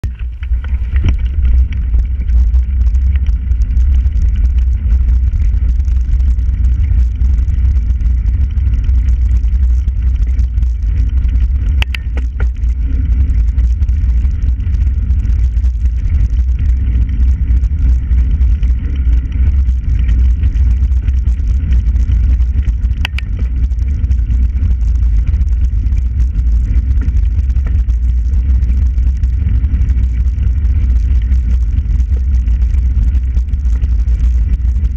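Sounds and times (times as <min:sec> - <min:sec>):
wind buffeting microphone: 0:00.0 - 0:34.9
sharp clicks: 0:11.7 - 0:12.6, 0:22.9 - 0:23.5.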